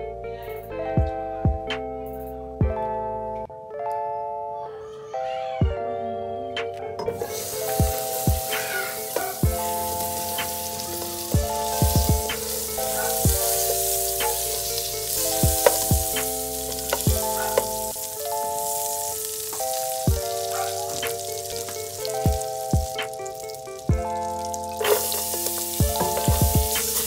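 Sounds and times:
background music with beat: 0.0 - 4.2, 5.6 - 27.0
butter sizzling in a frying pan: 7.2 - 27.0.

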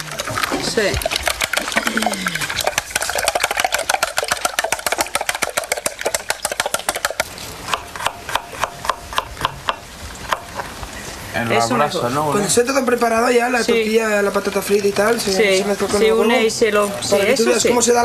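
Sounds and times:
rapid clicking knocks: 2.6 - 10.6
knife chopping on wooden board: 4.5 - 10.6.

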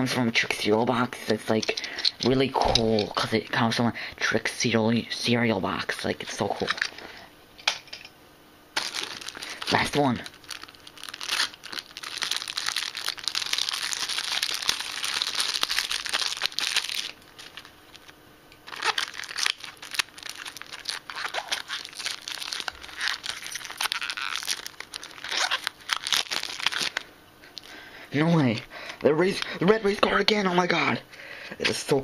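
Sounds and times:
plastic wrapping crinkling: 8.8 - 27.7.

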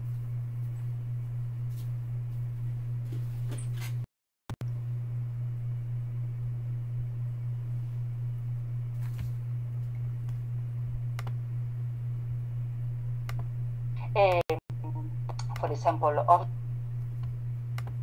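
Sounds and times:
low electrical hum: 0.0 - 18.0
sharp clicks: 11.2 - 11.4, 17.2 - 18.0.

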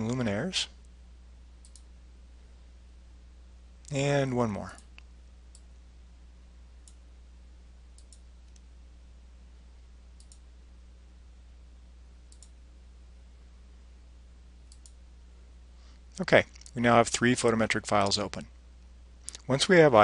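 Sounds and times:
faint low hum: 0.0 - 20.0
computer mouse clicking: 1.6 - 1.9, 8.0 - 8.7, 10.2 - 10.4, 12.3 - 12.6, 14.7 - 15.0.

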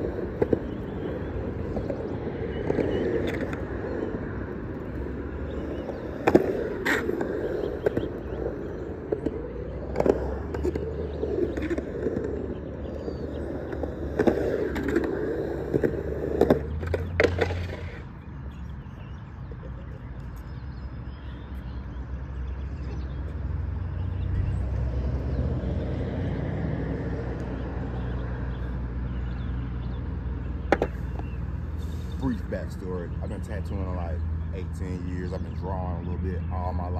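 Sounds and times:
skateboard clacks: 0.0 - 18.1, 30.5 - 31.5
skateboard wheels rolling on concrete: 0.0 - 36.9.

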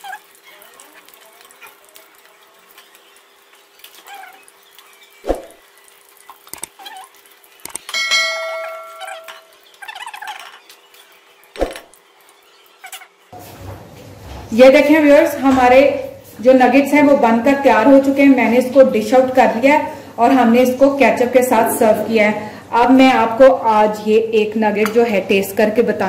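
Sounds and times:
bright bell-like chime: 7.9 - 9.5
tongs clinking against metal pan: 7.9 - 9.6.

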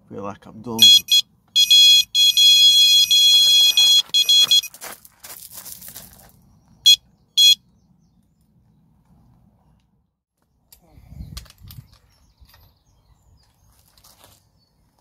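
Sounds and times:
high-pitched electronic beeps: 0.8 - 4.7.

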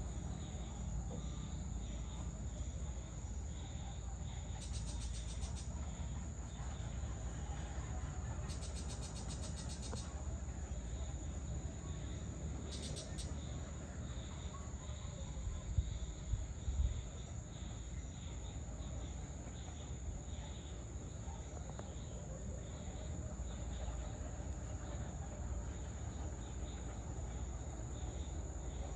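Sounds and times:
low outdoor rumble: 0.0 - 28.9
pulsing insect chirr: 0.0 - 28.9
high-pitched insect trill: 0.1 - 21.1.

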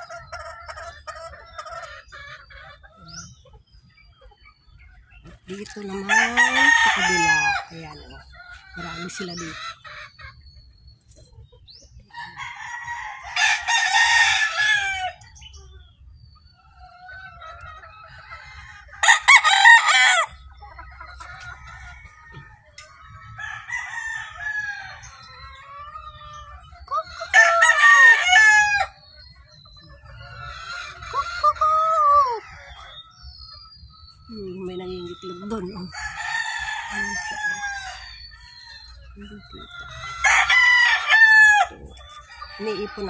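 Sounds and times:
hens clucking softly: 0.0 - 13.9, 14.5 - 43.0
rooster crowing: 5.8 - 8.2, 12.1 - 15.2, 18.0 - 20.4, 21.5 - 25.0, 27.3 - 29.0, 35.9 - 43.0.

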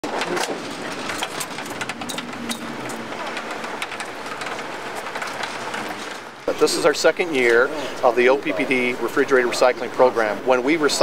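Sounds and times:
sharp clicks and knocks: 0.0 - 6.5
street traffic noise: 0.0 - 11.0.

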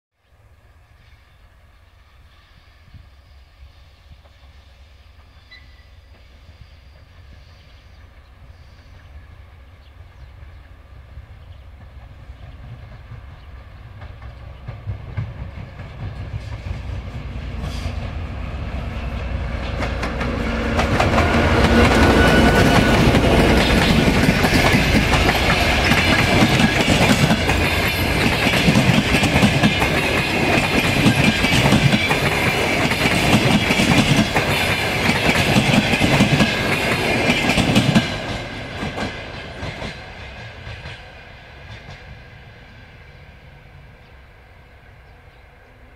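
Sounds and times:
diesel locomotive engine: 0.4 - 45.9
train wheels clattering over rail joints: 19.6 - 42.1.

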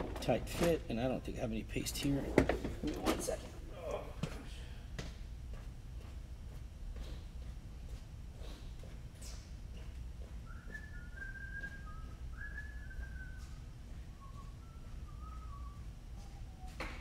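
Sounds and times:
person whistling a tune: 10.4 - 16.8.

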